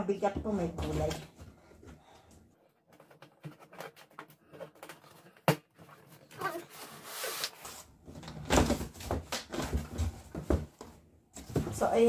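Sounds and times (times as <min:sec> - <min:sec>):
cardboard and plastic wrap rustling: 0:02.7 - 0:12.0.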